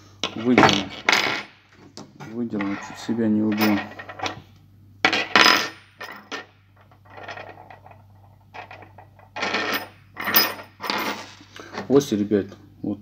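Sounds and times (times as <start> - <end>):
metal parts clinking on wooden table: 2.6 - 4.4, 5.1 - 11.9.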